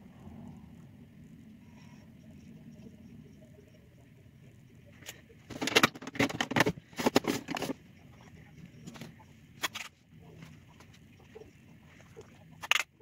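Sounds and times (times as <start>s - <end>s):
makeup items clicking and knocking: 5.5s - 7.7s.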